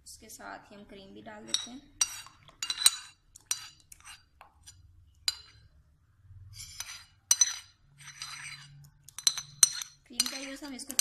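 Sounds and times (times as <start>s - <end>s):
spoon scraping bowl: 1.4s - 5.7s, 6.4s - 11.0s
metal spoon clinking against bowl: 1.5s - 4.2s, 5.2s - 5.7s, 6.8s - 11.0s.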